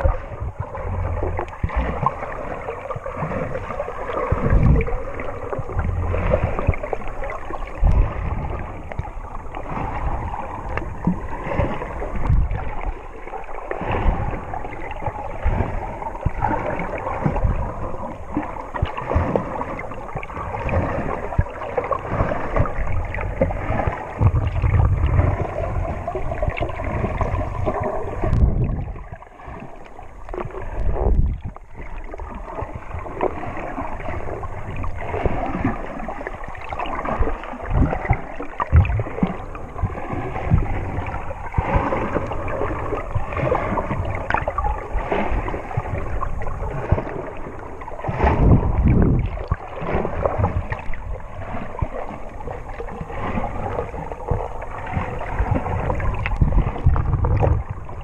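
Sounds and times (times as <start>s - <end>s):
muffled water sloshing underwater: 0.0s - 58.0s
low underwater thuds: 13.7s - 35.9s, 36.8s - 58.0s.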